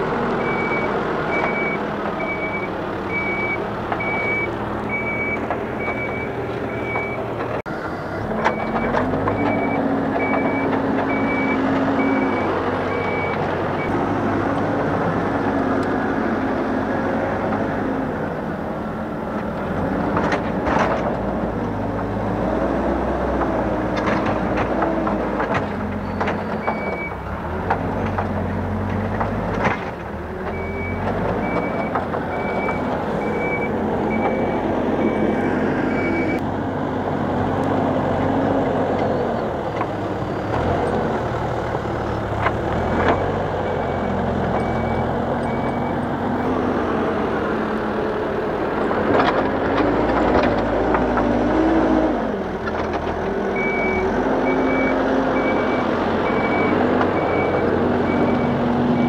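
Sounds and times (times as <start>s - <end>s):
diesel engine revving: 0.0s - 59.0s
reversing alarm beeping: 0.4s - 7.3s, 8.5s - 14.0s, 30.5s - 36.4s, 43.1s - 46.6s, 53.6s - 59.0s.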